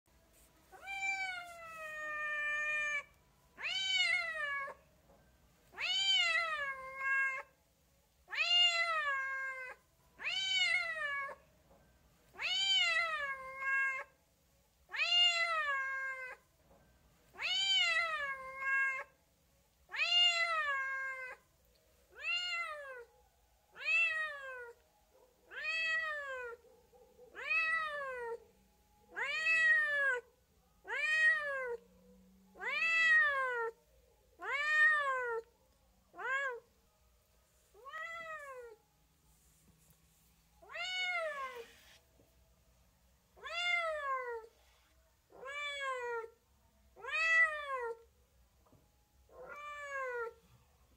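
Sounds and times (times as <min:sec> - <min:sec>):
cat meowing: 0:00.7 - 0:04.8, 0:05.7 - 0:07.6, 0:08.3 - 0:11.4, 0:12.4 - 0:14.2, 0:14.9 - 0:16.4, 0:17.4 - 0:19.2, 0:19.9 - 0:21.4, 0:22.1 - 0:23.1, 0:23.7 - 0:24.8, 0:25.5 - 0:26.6, 0:27.3 - 0:28.4, 0:29.1 - 0:31.8, 0:32.6 - 0:33.8, 0:34.4 - 0:35.5, 0:36.1 - 0:36.7, 0:37.8 - 0:38.8, 0:40.6 - 0:42.0, 0:43.4 - 0:44.5, 0:45.3 - 0:46.4, 0:47.0 - 0:48.0, 0:49.3 - 0:50.4.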